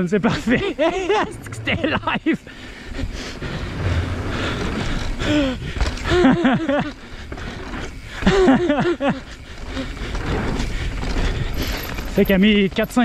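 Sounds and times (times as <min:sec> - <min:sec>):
rider's voice: 0:00.0 - 0:02.4, 0:12.1 - 0:13.0
bike rolling over wooden boardwalk: 0:00.2 - 0:13.0.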